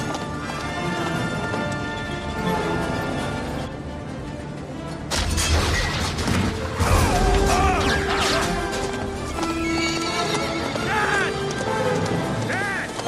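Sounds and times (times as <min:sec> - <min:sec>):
orchestral music: 0:00.0 - 0:13.0
loud crash and clatter: 0:05.1 - 0:09.0.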